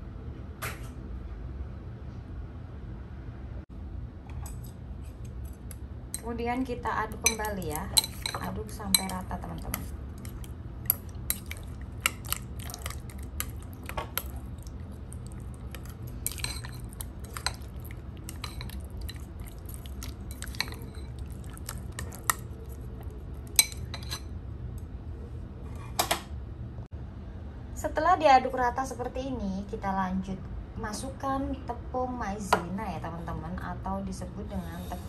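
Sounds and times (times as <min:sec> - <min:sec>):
steady low hum: 0:00.0 - 0:35.0
chopsticks tapping a ceramic bowl: 0:07.1 - 0:14.3.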